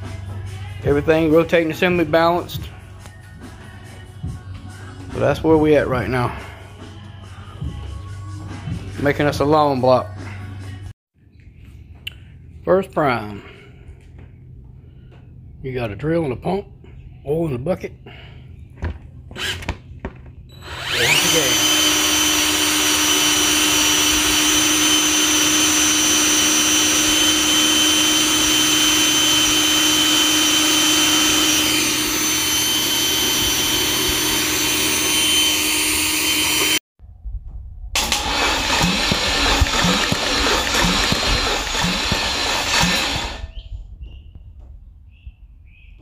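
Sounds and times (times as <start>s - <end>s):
electric drill running with whine: 20.5s - 36.8s, 38.0s - 43.5s
rough mechanical noise with low pulse: 37.5s - 43.7s.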